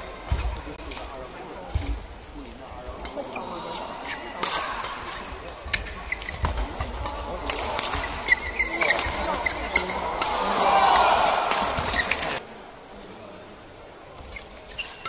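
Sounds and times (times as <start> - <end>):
murmur of crowd: 0.0 - 15.0
rackets striking shuttlecock: 4.3 - 12.4
shoe squeaks on court floor: 5.2 - 6.7, 8.0 - 9.9, 14.3 - 15.0.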